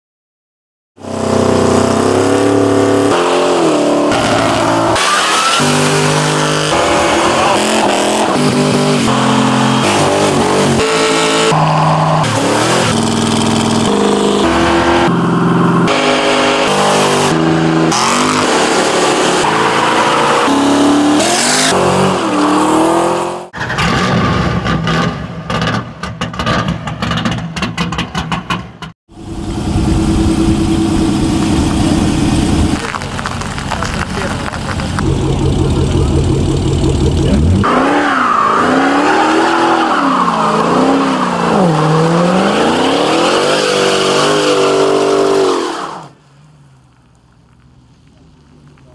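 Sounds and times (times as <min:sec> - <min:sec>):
muscle car engines revving: 0:01.0 - 0:24.0, 0:29.2 - 0:46.2
tyres squealing: 0:04.1 - 0:08.4.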